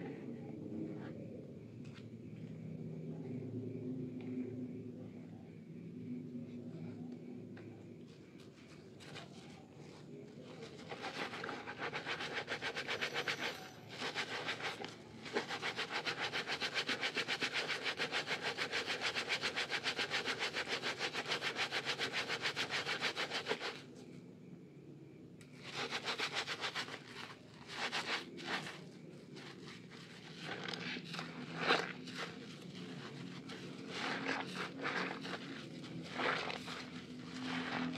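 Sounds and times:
wet frothy soap rubbing: 0:08.6 - 0:23.8, 0:25.6 - 0:37.9.

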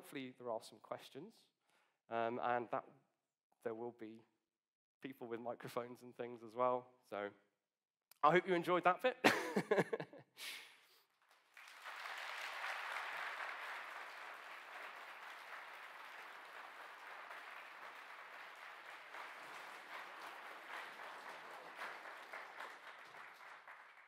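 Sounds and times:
audience applauding: 0:11.2 - 0:24.0.

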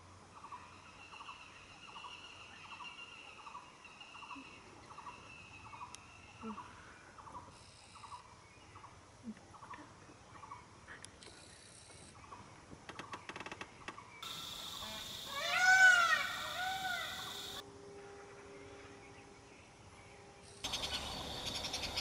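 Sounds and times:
animal buzzy call: 0:14.2 - 0:17.6.

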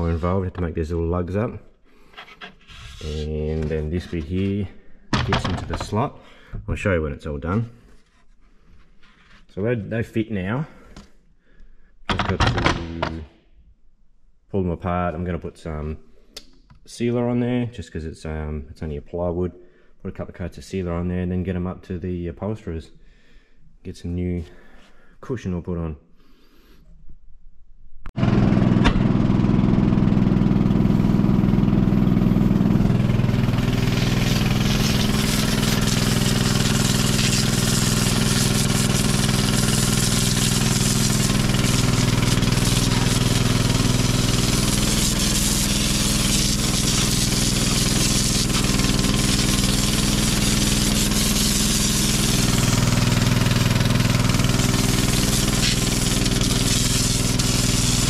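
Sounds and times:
pressure washer motor drone: 0:28.2 - 0:58.0
water jet hissing on metal: 0:34.0 - 0:52.7, 0:54.5 - 0:58.0.

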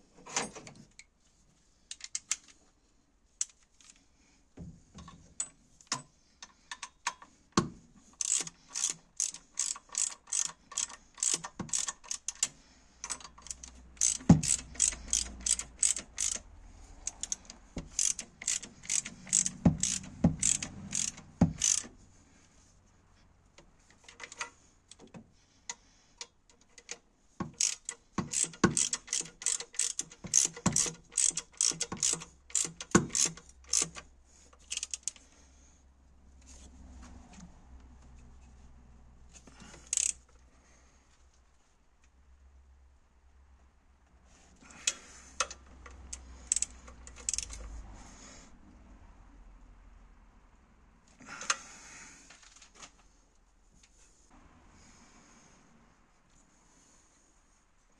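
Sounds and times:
ratchet wrench clicking: 0:01.9 - 0:02.5, 0:08.1 - 0:21.9, 0:26.7 - 0:35.3, 0:39.5 - 0:40.3, 0:44.8 - 0:47.8.

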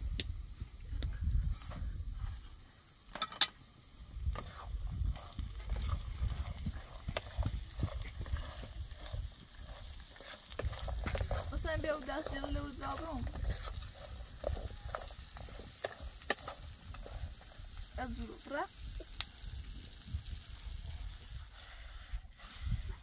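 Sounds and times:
food frying in a pan: 0:00.0 - 0:21.6
wooden spoon stirring and scraping: 0:01.5 - 0:19.2.

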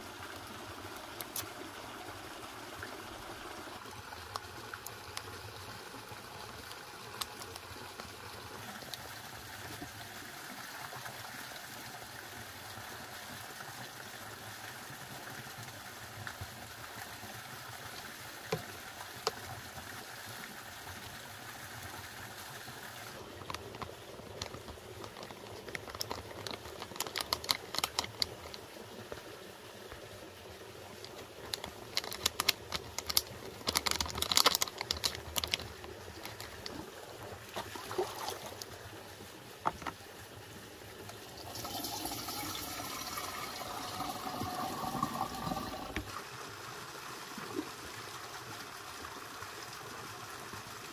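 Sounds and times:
running water: 0:00.0 - 0:50.9
plastic sachet crinkling: 0:23.4 - 0:28.6, 0:31.4 - 0:36.8.

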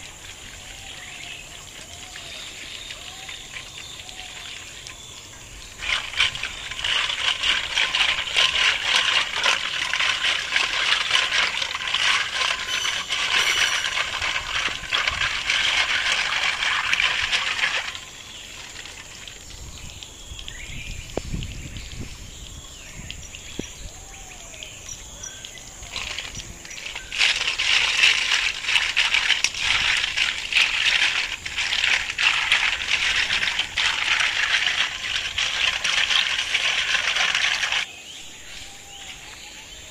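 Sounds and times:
running hose water: 0:00.0 - 0:39.9
shells clicking in a steel basin: 0:05.8 - 0:18.2, 0:25.9 - 0:37.9.

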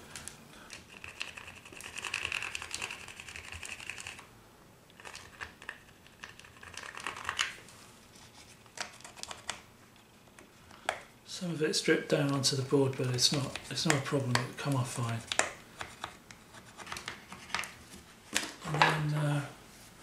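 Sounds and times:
plastic card scraping wax: 0:12.2 - 0:17.8.

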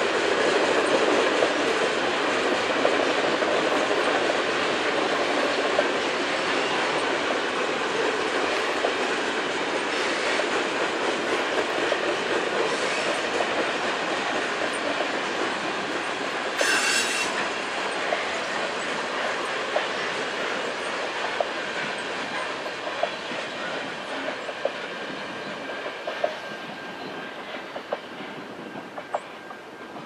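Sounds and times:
freight train rumbling past: 0:00.0 - 0:30.0
wheels clicking at rail joints: 0:00.0 - 0:30.0
high-pitched wheel squeal: 0:16.6 - 0:17.4.

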